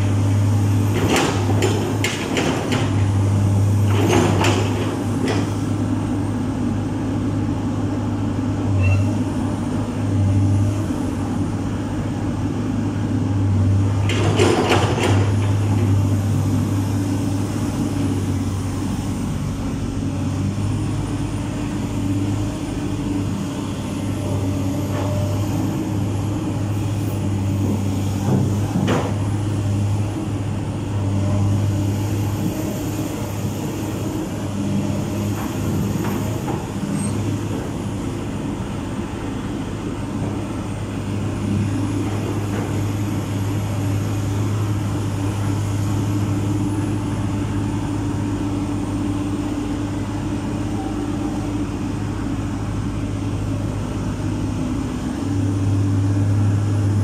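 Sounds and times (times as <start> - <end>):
excavator diesel engine running: 0.0 - 57.0
excavator knocks: 0.8 - 3.2, 3.8 - 5.6, 14.0 - 15.9, 27.6 - 29.4.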